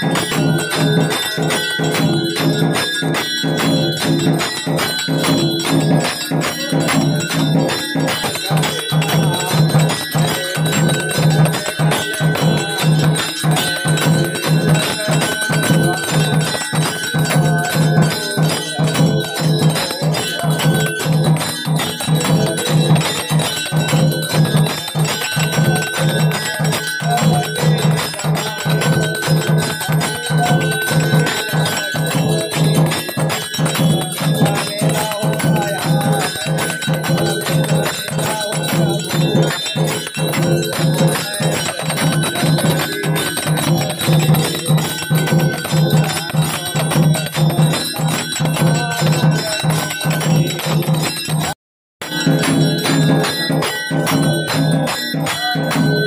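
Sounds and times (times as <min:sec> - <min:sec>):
temple bells ringing: 0:00.0 - 0:56.0.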